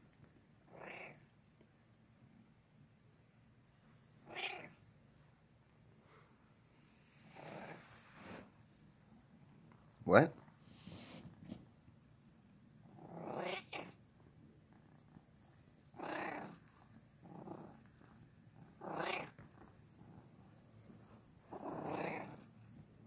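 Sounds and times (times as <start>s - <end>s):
cat purring: 0.6s - 1.3s, 6.1s - 9.7s, 10.3s - 23.0s
cat vocalizing: 0.7s - 1.3s, 4.2s - 4.8s, 12.9s - 14.0s, 16.0s - 17.8s, 18.6s - 19.7s, 21.5s - 22.4s.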